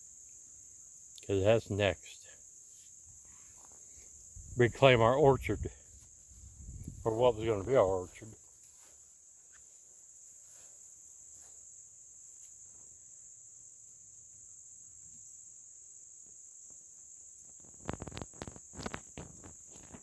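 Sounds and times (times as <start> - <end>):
insects singing: 0.0 - 20.0.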